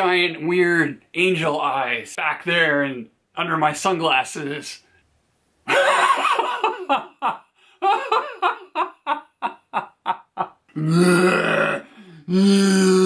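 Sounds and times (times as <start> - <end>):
man laughing: 5.7 - 10.7
long held voiced sound: 10.8 - 13.0.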